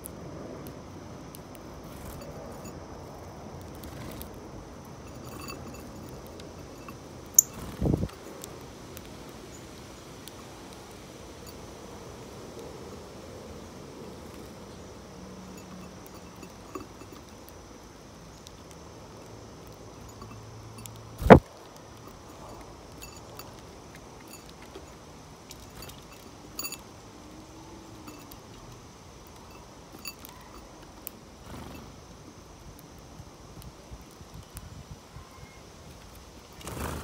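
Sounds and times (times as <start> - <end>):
faint outdoor hiss: 0.0 - 37.0
thin high steady tone: 4.5 - 8.5, 13.9 - 18.8, 19.7 - 21.4.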